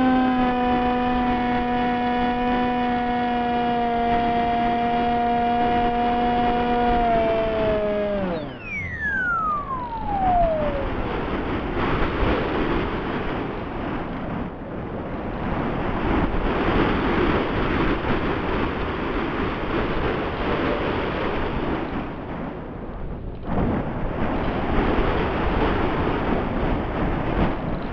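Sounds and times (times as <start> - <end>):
model plane motor whine: 0.0 - 11.7
wind rushing past camera: 0.0 - 27.9.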